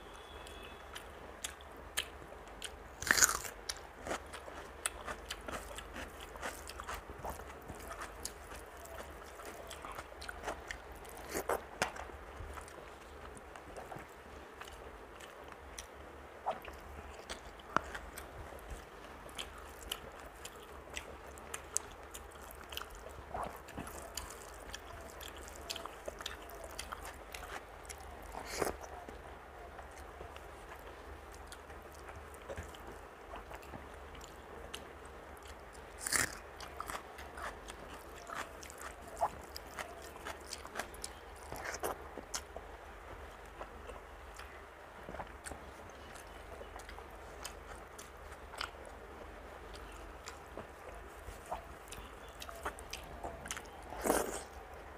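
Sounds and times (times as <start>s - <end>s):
faint low hum: 0.0s - 54.9s
person chewing with wet mouth clicks: 49.7s - 54.6s.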